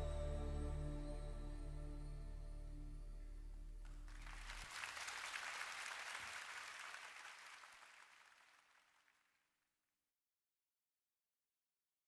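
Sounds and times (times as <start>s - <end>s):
audience applause: 3.9s - 9.3s.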